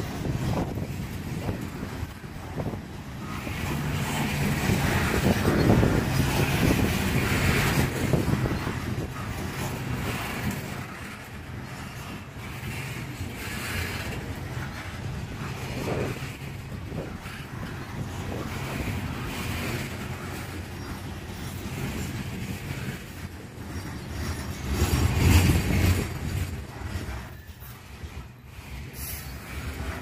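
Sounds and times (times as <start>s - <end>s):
freight train rumbling past: 0.0s - 30.0s
steel wheels clattering on rails: 0.0s - 30.0s.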